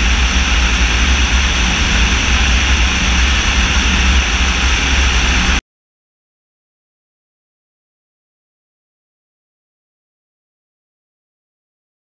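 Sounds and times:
drone engine noise: 0.0 - 5.6
heavy low rumble: 0.0 - 5.6
wind rush: 0.0 - 5.6.

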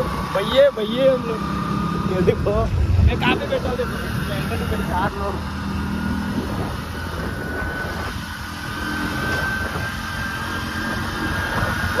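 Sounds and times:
vehicle engine and road rumble: 0.0 - 12.0.

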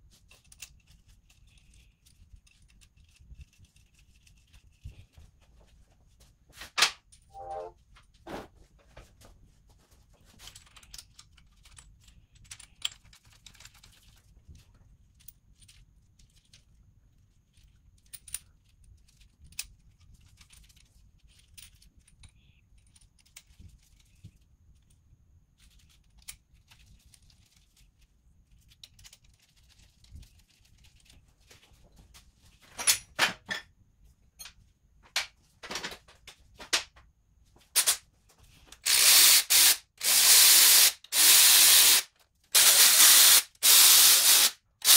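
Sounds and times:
metal parts clicking and clinking: 0.2 - 4.8, 10.4 - 14.3, 17.5 - 24.2, 28.5 - 30.0, 32.7 - 33.7
cordless ratchet running: 38.8 - 42.0, 42.6 - 44.9.

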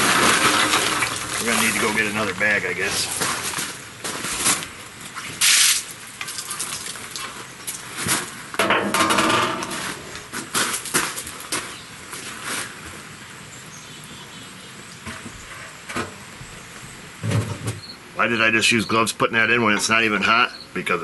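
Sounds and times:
metal knocks and rattles: 8.6 - 10.6.

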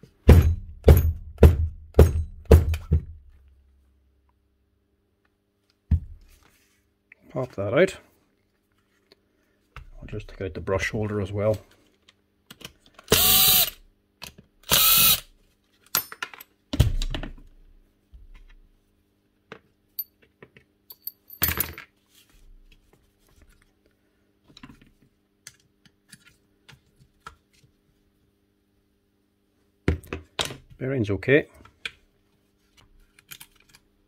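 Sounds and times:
power drill-driver running: 13.1 - 13.8, 14.7 - 15.2
metal parts and tools clicking: 20.9 - 21.8.

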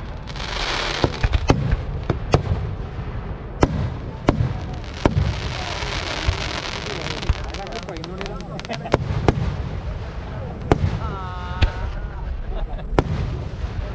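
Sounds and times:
firework shells bursting: 0.0 - 2.6
firework crackling hiss: 0.0 - 13.9.

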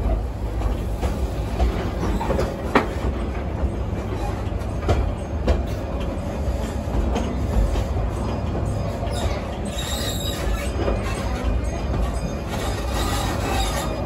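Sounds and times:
train wheels rumbling: 0.0 - 14.0
wheel squeal: 8.2 - 14.0.

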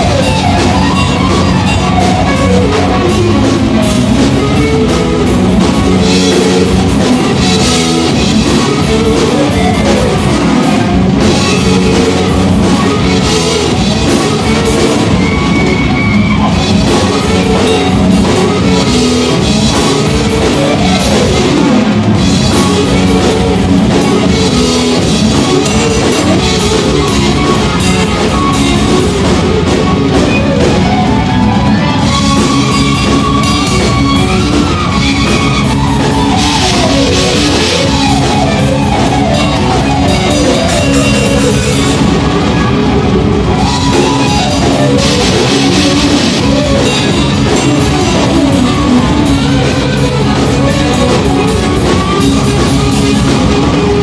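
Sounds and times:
bass guitar: 0.0 - 54.0
drum kit: 0.0 - 54.0
electric guitars: 0.0 - 54.0.

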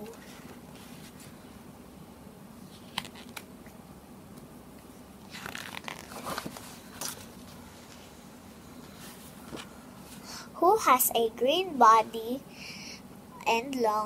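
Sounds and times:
paper crinkling and rustling: 5.3 - 8.0.

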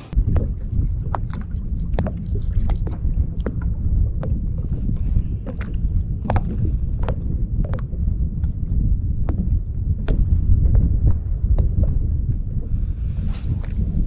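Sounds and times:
low rumble: 0.0 - 14.0
paddle splashes and drips: 0.2 - 7.8.

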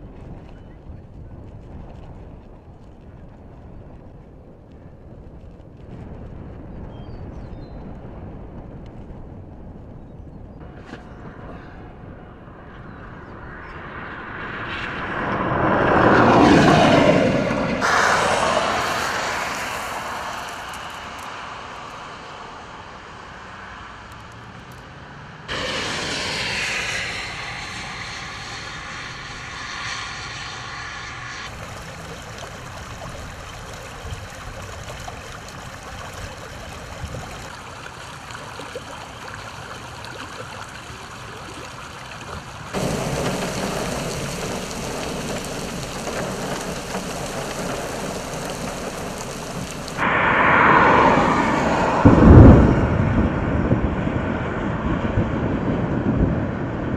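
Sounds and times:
car passing on wet road: 12.4 - 36.2, 42.2 - 54.8
water rushing down ditch: 15.5 - 24.0, 31.5 - 51.9.

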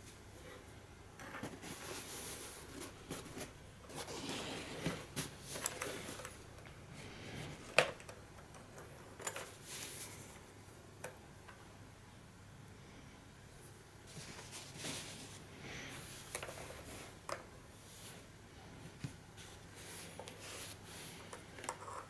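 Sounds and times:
rustling handling noise: 1.2 - 10.5, 14.0 - 22.0.

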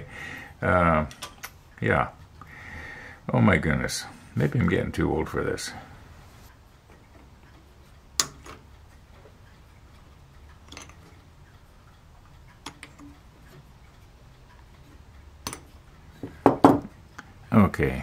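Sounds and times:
plastic parts clicking and tapping: 8.2 - 8.7, 10.6 - 11.2.

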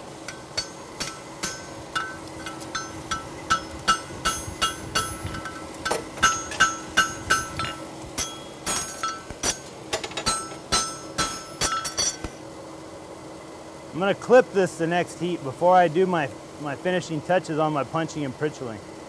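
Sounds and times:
hammer striking horseshoe on anvil: 0.3 - 12.4.

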